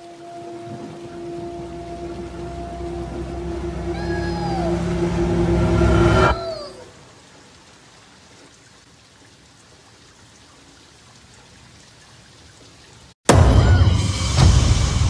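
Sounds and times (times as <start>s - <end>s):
faint rain hiss: 0.0s - 13.2s
sudden loud hit: 13.3s - 15.0s.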